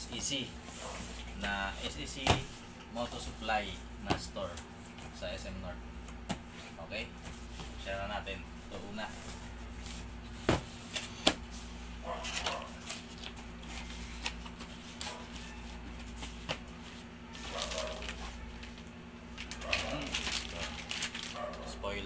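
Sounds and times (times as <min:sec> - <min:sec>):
knocks on cardboard box: 0:02.2 - 0:02.5, 0:10.4 - 0:11.4.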